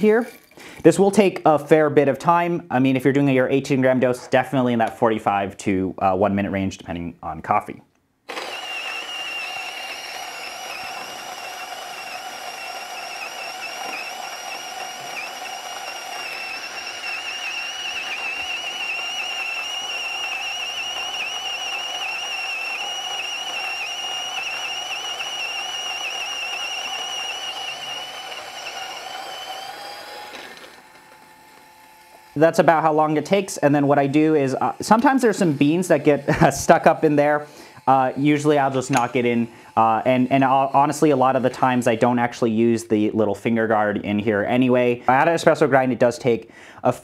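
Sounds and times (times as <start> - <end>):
coffee grinder motor whine: 8.3 - 42.2.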